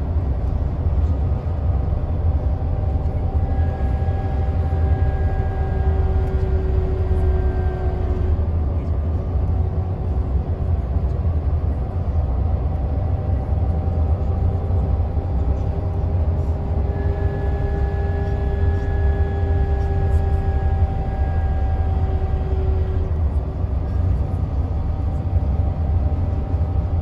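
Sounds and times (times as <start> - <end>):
coach cabin low rumble: 0.0 - 27.0.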